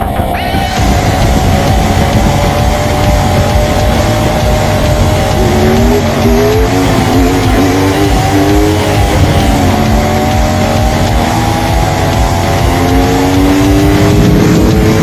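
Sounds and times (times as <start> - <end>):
wind rush over microphone: 0.0 - 5.5
sport bike engine pulling hard: 0.0 - 15.0.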